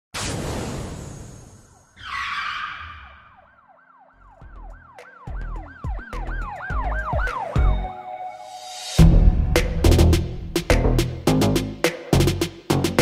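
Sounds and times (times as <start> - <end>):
yelping siren effect: 2.0 - 8.0
deep bass hits: 9.0 - 11.8.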